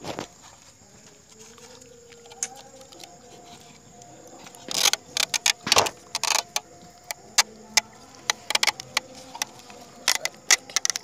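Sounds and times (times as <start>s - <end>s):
plastic clicks and knocks: 4.6s - 11.0s.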